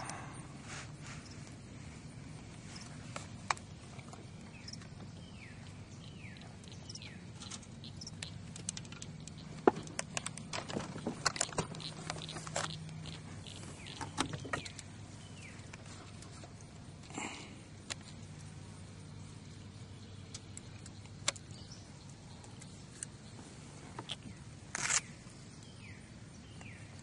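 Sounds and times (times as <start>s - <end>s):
steady low hum: 0.0s - 27.0s
bird chirps: 4.4s - 9.6s, 11.0s - 16.0s
camera handling knocks and rattles: 8.5s - 14.9s.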